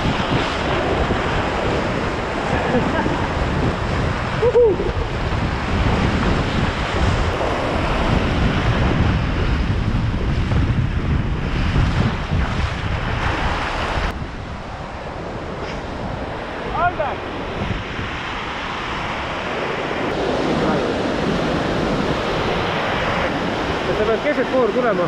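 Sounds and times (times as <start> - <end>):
wind buffeting microphone: 0.0 - 25.0
whitewater rapids rushing: 18.7 - 25.0.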